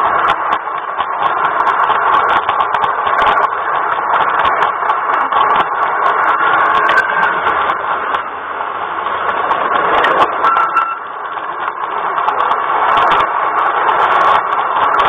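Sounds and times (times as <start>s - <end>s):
model train whirring on track: 0.0s - 15.0s.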